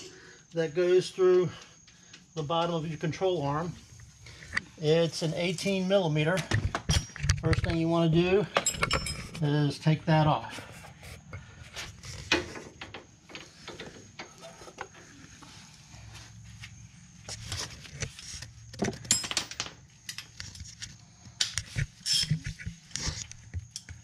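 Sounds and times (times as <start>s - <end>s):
wrench and hammer clinking on metal: 6.4s - 9.5s, 18.8s - 20.3s.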